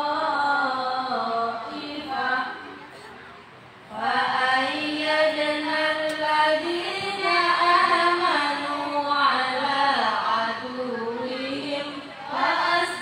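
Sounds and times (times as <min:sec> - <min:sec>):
women chanting melodically: 0:03.9 - 0:13.0.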